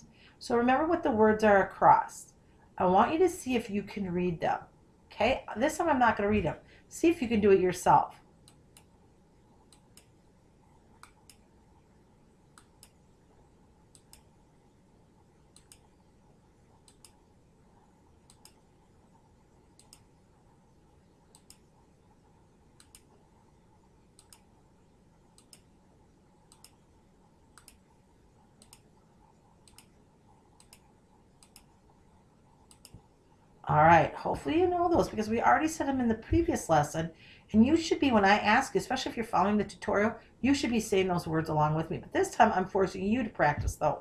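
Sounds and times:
computer mouse clicks: 0:08.4 - 0:09.0, 0:09.6 - 0:10.2, 0:10.9 - 0:11.5, 0:12.5 - 0:13.0, 0:13.9 - 0:14.4, 0:15.5 - 0:16.0, 0:16.8 - 0:17.3, 0:18.2 - 0:18.8, 0:19.7 - 0:20.2, 0:21.3 - 0:21.8, 0:22.7 - 0:23.2, 0:24.2 - 0:24.6, 0:25.3 - 0:25.8, 0:26.4 - 0:26.9, 0:27.5 - 0:27.9, 0:28.6 - 0:32.0, 0:32.6 - 0:33.1.

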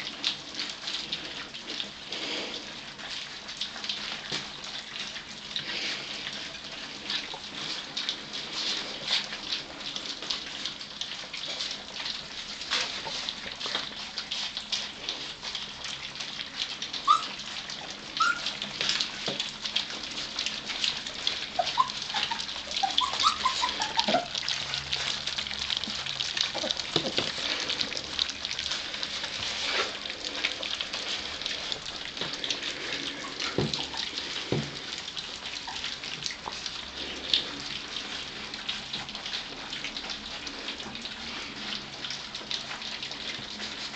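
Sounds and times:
puppies lapping food: 0:00.0 - 0:43.9
puppies whimpering: 0:11.1 - 0:43.9.

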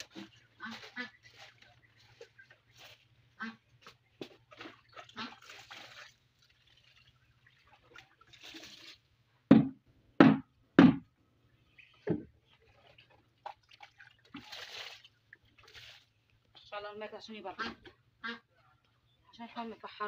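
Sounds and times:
loud thuds: 0:09.5 - 0:11.0.

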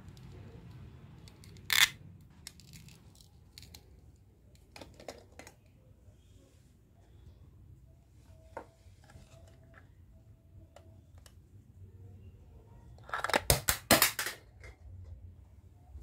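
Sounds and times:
plastic pieces clacking and rattling: 0:01.2 - 0:04.0, 0:04.6 - 0:05.6, 0:13.0 - 0:14.8
plastic toy pieces clicking: 0:01.2 - 0:04.0.

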